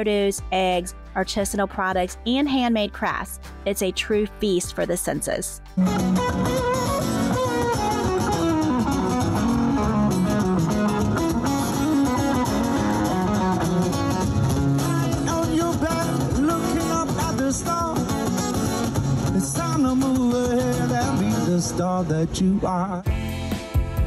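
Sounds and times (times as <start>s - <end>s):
acoustic guitar playing: 0.0s - 24.0s
man singing: 14.9s - 18.6s, 19.2s - 23.2s.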